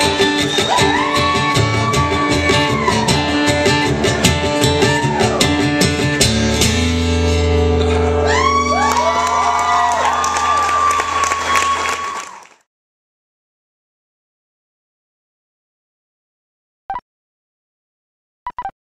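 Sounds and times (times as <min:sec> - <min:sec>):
strummed acoustic guitar: 0:00.0 - 0:08.2.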